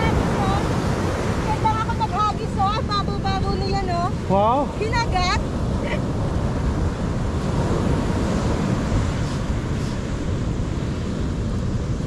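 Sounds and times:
surf washing on beach: 0.0 - 12.0
wind rumbling on microphone: 0.0 - 12.0.

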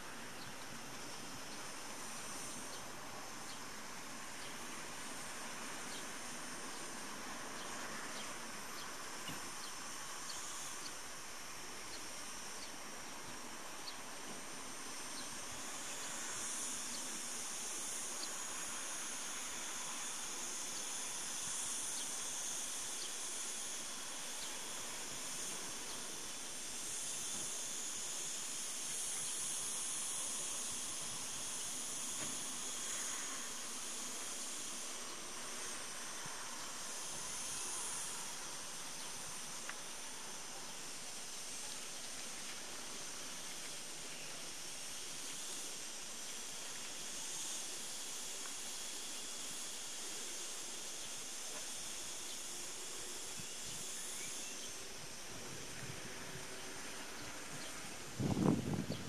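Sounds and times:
cicadas buzzing: 0.0 - 59.0.

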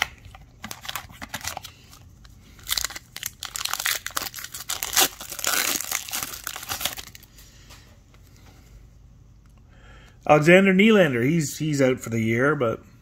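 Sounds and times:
foil wrapper crinkling and tearing: 0.0 - 7.3.

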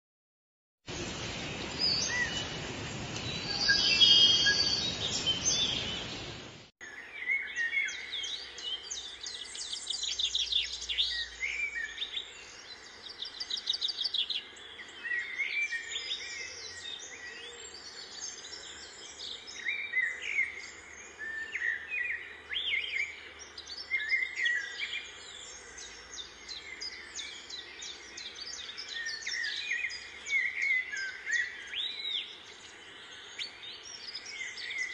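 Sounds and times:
loud hissing noise: 0.9 - 4.2
small birds chirping: 0.9 - 34.9.

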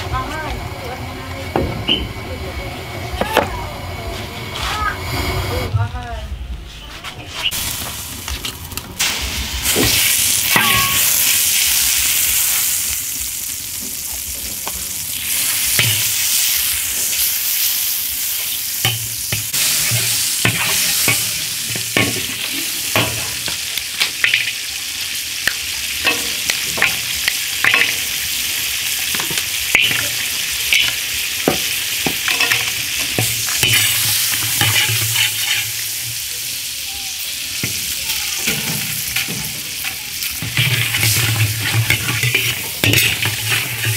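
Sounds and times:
butter sizzling in a wok: 7.4 - 43.9
metal ladle scraping a wok: 18.3 - 23.6, 29.0 - 36.1, 38.4 - 43.9.

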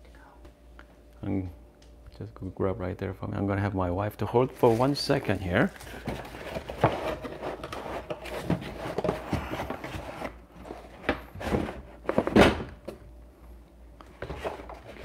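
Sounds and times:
packaging scraping and rustling: 4.6 - 12.4.

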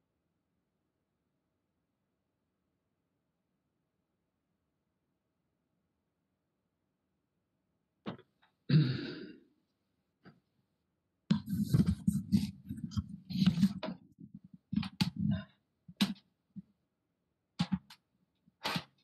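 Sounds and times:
knocks and rustling at microphone: 11.3 - 16.7.

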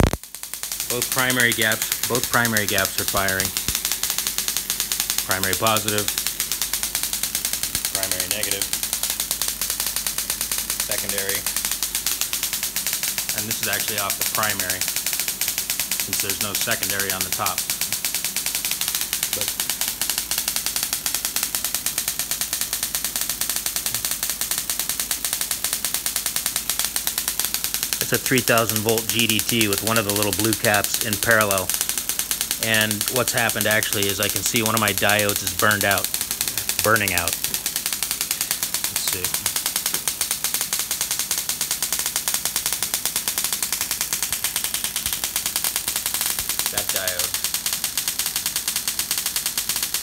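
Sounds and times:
snapping electric sparks: 0.0 - 50.0.

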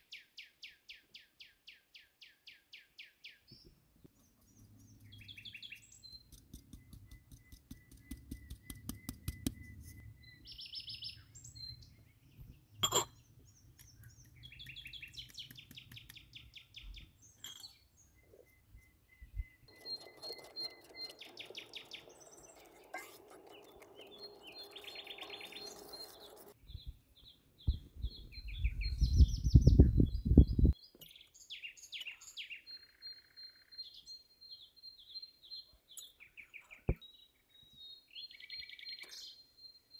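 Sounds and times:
songbirds chirping: 0.0 - 39.9
kitchen bowls and utensils clinking: 12.8 - 13.2, 22.6 - 24.4.

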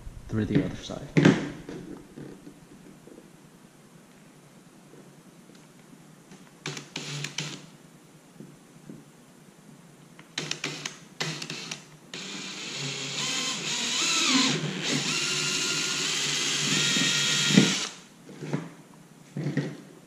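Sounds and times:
cordless drill whining: 6.7 - 7.6, 10.4 - 18.1.

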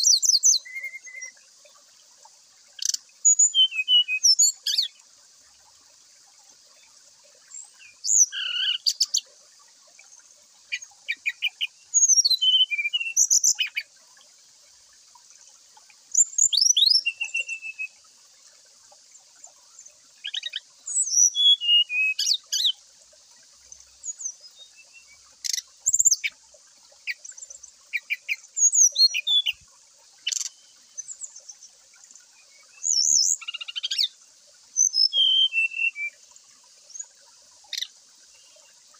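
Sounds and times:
bird singing whistled phrases: 0.0 - 1.4, 2.8 - 4.9, 8.0 - 9.0, 11.1 - 13.8, 16.2 - 18.0, 20.3 - 22.8, 27.9 - 29.6, 34.8 - 36.2
faint high hiss: 0.0 - 38.9.

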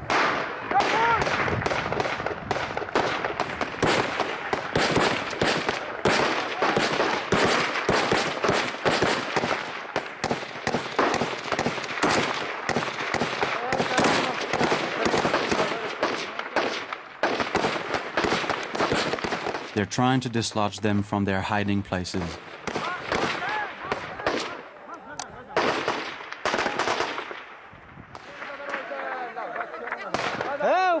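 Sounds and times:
rapid gunshots: 0.0 - 20.2, 22.1 - 24.6, 25.5 - 27.6
automatic gunfire bursts: 0.1 - 19.7.

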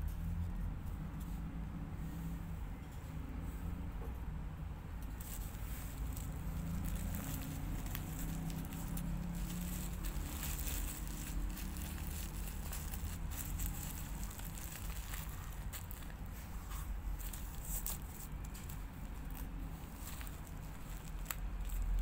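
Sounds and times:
bubble wrap crackling: 5.0 - 22.0.

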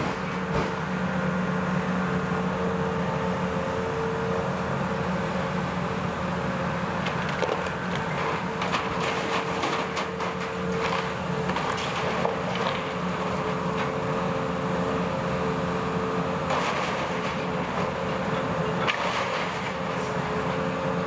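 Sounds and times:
excavator diesel engine humming: 0.0 - 21.0
wood and debris cracking: 7.0 - 14.0, 16.4 - 18.2, 18.8 - 20.0.

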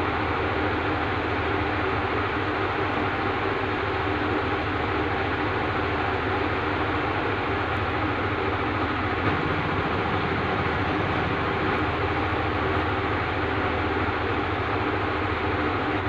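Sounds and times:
engine-like rumbling: 7.8 - 15.5.

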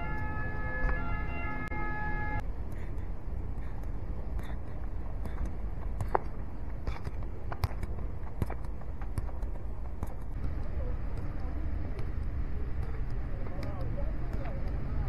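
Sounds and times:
low outdoor rumble: 0.0 - 15.0
football touches on dirt: 5.3 - 11.3.

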